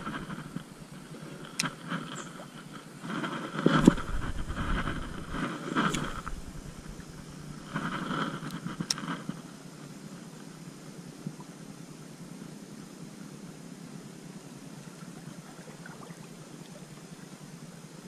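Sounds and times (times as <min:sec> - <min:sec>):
sharp reel clicks: 0:03.8 - 0:07.3.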